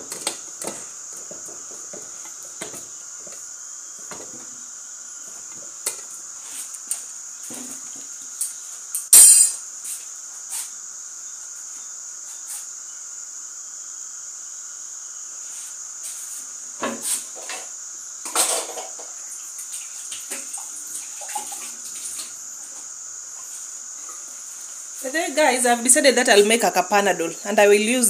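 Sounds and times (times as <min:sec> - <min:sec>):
pots and utensils clattering: 0:18.3 - 0:19.2.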